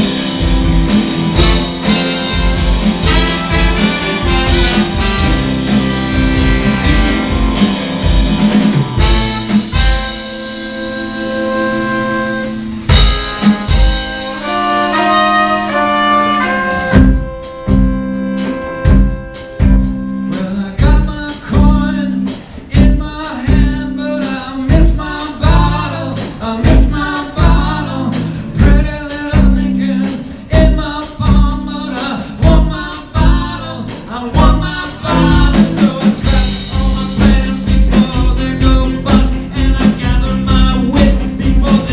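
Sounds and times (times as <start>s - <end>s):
drums steady beat: 0.0s - 41.9s
live rock band playing: 0.0s - 41.9s
held brass notes: 0.4s - 20.6s
person singing: 20.3s - 41.9s.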